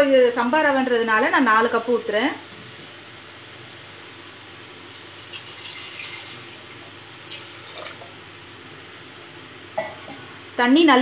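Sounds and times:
water pouring into a pot: 4.6s - 8.5s.

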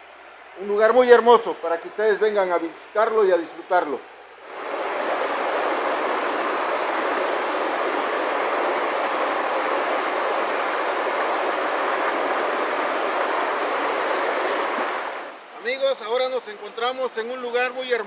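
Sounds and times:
river water rushing: 4.1s - 18.0s.

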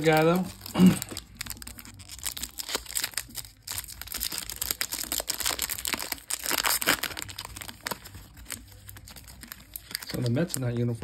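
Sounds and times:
foil wrapper crinkling: 0.0s - 11.0s.

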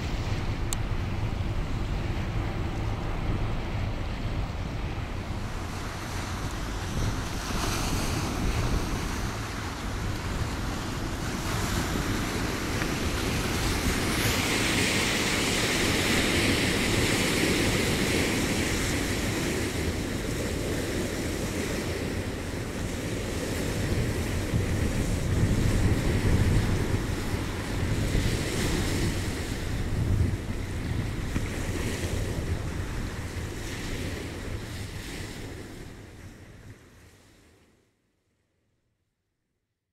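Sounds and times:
wind rumbling on microphone: 0.0s - 37.6s
waves washing onto stony shore: 5.0s - 36.6s.

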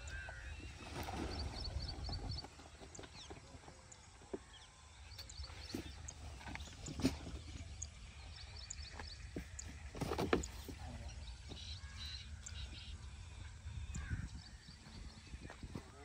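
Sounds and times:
birds chirping faintly: 0.0s - 16.0s.

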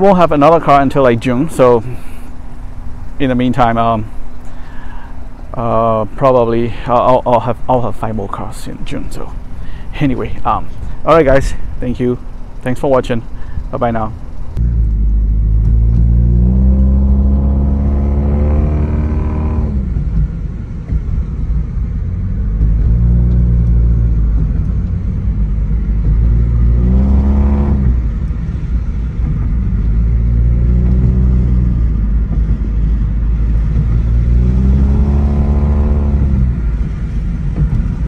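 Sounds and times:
car engine accelerating: 13.2s - 38.0s.

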